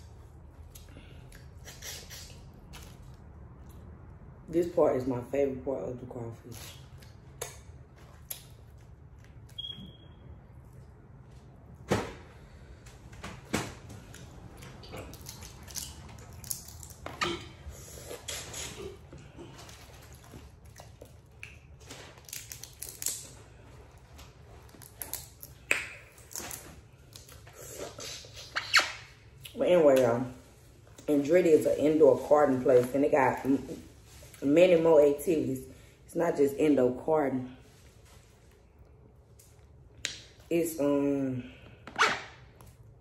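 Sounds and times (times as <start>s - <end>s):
wet chewing: 17.8s - 23.4s.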